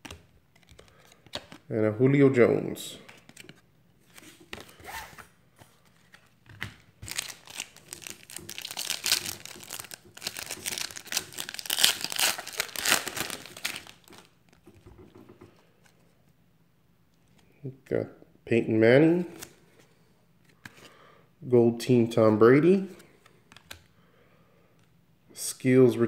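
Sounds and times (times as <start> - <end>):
foil wrapper tearing and crinkling: 7.0 - 14.3.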